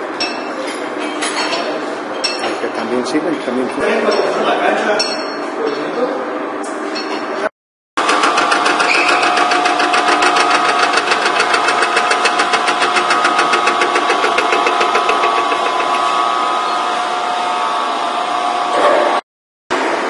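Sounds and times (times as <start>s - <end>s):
cutter ticking on metal: 8.0s - 16.4s
milling machine drive whine: 8.0s - 19.2s.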